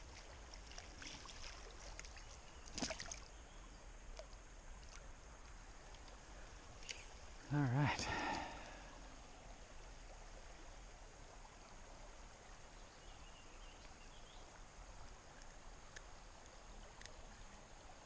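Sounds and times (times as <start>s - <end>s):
faint creek water flowing: 0.0s - 18.0s
soft ticks: 15.3s - 17.2s.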